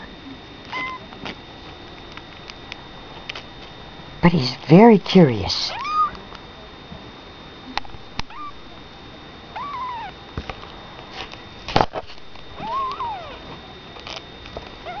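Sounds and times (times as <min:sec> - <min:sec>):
kitten mewing: 0:04.3 - 0:06.2, 0:08.3 - 0:08.6, 0:09.6 - 0:10.1, 0:12.6 - 0:13.4.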